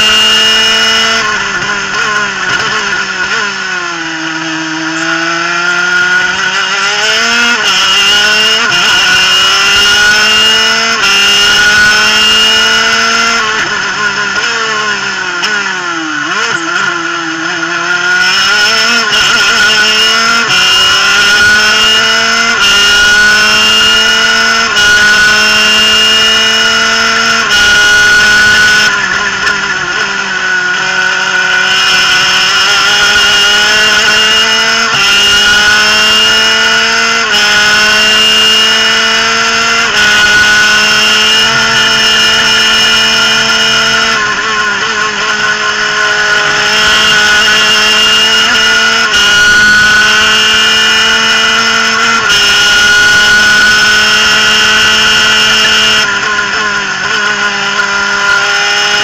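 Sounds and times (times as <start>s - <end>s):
two-stroke kart engine revving: 0.0s - 59.0s.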